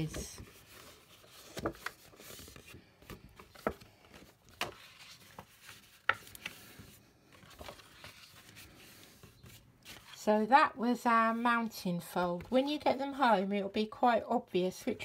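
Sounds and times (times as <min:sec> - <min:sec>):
card rubbing and rustling: 0:00.0 - 0:10.2.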